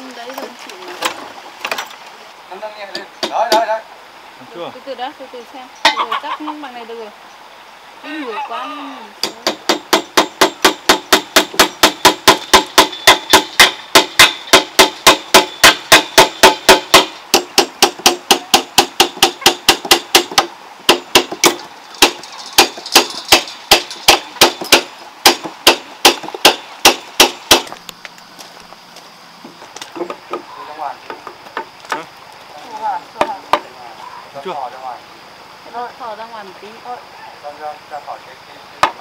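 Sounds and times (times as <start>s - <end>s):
hammer nailing timber: 9.2s - 27.7s.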